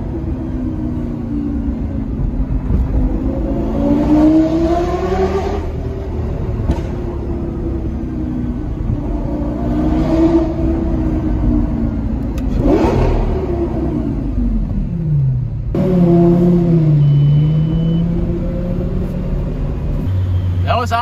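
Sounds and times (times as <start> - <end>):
car engine accelerating: 0.0 - 20.1.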